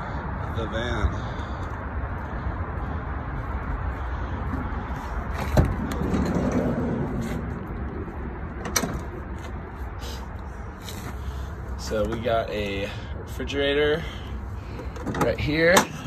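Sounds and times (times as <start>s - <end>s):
steady background noise: 0.0s - 16.0s
sliding door rumbling open: 5.4s - 7.8s.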